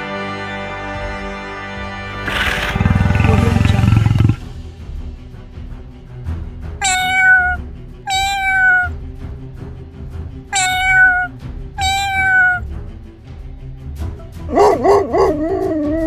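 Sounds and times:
soft background music: 0:00.0 - 0:16.0
cat meowing: 0:02.2 - 0:04.4, 0:06.8 - 0:08.9, 0:10.5 - 0:12.6.

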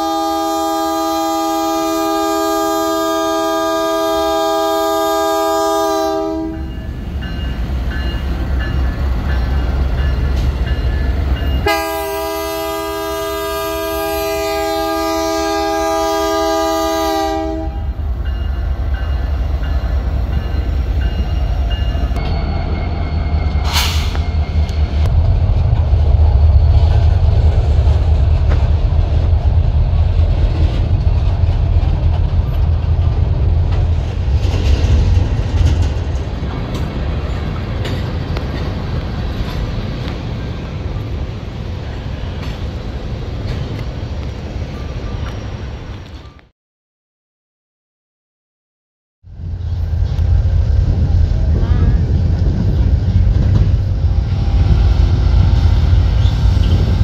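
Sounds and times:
train chord horn blasts: 0:00.0 - 0:06.8, 0:11.6 - 0:18.0
diesel locomotives rumbling: 0:00.0 - 0:46.5, 0:49.2 - 0:57.0
rail cars passing: 0:00.0 - 0:46.5, 0:49.2 - 0:57.0
sharp click or squeal: 0:23.5 - 0:24.8.

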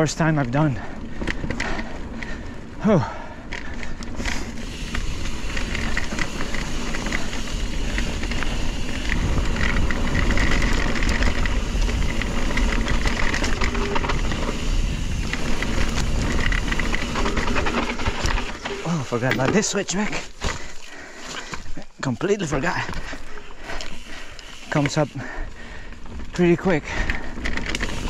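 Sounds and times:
bike rattling: 0:00.0 - 0:28.0
tyres clattering over rocks: 0:05.3 - 0:25.1
wind rumble on microphone: 0:07.7 - 0:18.4.

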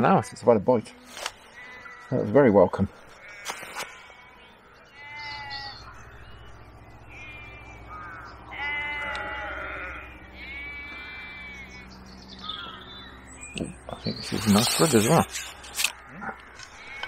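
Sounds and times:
animal wavering cries: 0:03.2 - 0:06.3, 0:07.0 - 0:11.9, 0:14.2 - 0:17.0
steady low hum: 0:04.4 - 0:17.0.

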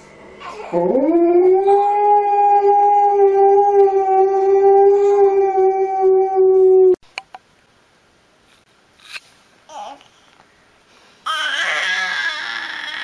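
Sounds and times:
dog howling: 0:00.7 - 0:07.0.

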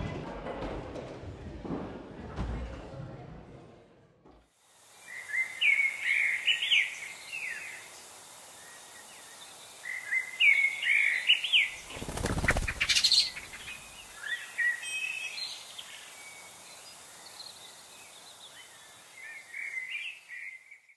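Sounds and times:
steady background hiss: 0:04.5 - 0:20.9
bird song whistled notes: 0:05.0 - 0:20.9.

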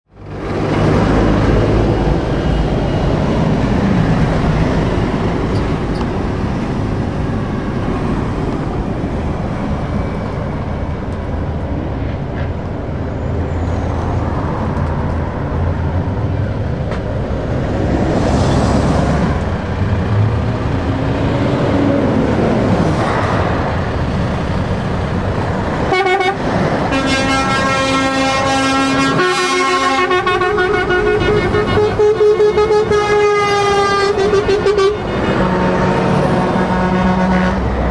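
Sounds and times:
heavy lorries driving past: 0:00.1 - 0:37.9
truck air horn blasts: 0:25.9 - 0:37.8.

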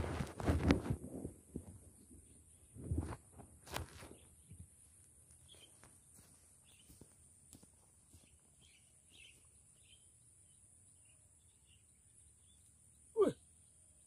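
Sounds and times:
rustling and soft thuds: 0:00.0 - 0:09.5
faint chirps: 0:08.1 - 0:14.0.

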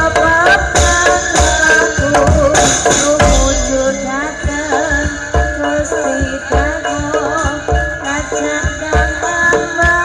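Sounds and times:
person singing: 0:00.0 - 0:10.0
low drum strokes: 0:02.0 - 0:05.4.

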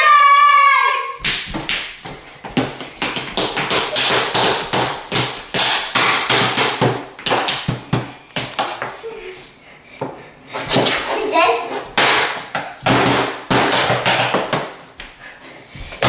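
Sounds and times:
wooden spoons whacking tabletop: 0:01.2 - 0:09.0, 0:10.0 - 0:14.8.

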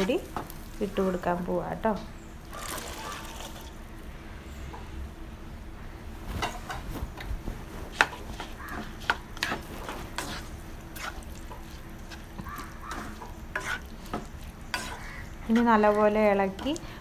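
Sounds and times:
wooden spatula scraping a pan: 0:07.5 - 0:16.8.

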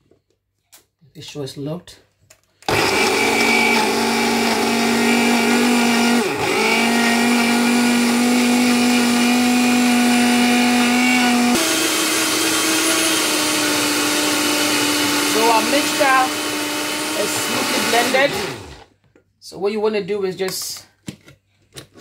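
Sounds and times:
blender motor running: 0:02.7 - 0:18.9.

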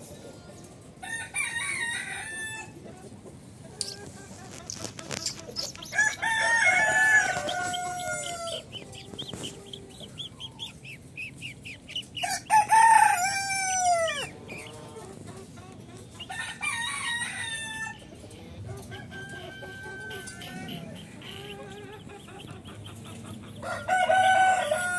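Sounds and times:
rooster crowing: 0:01.0 - 0:02.7, 0:05.9 - 0:08.8, 0:12.2 - 0:14.4, 0:16.3 - 0:18.0, 0:19.0 - 0:21.0, 0:23.6 - 0:24.9.

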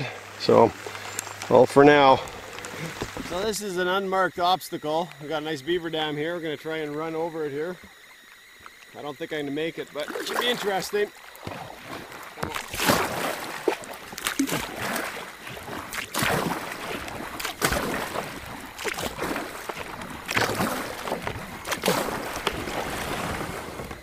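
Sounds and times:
kayak paddle splashing: 0:00.0 - 0:24.0
steady hiss of water: 0:00.0 - 0:24.0.

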